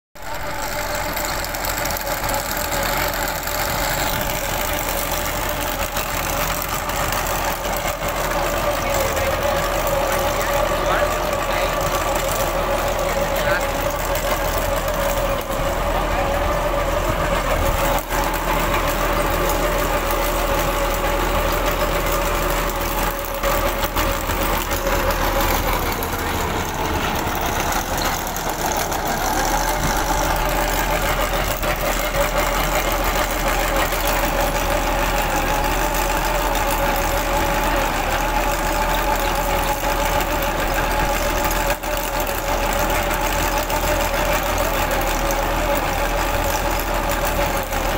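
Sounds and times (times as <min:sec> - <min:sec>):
tractor diesel engine under load: 0:00.1 - 0:47.9
trencher digging chain whine: 0:00.2 - 0:47.9.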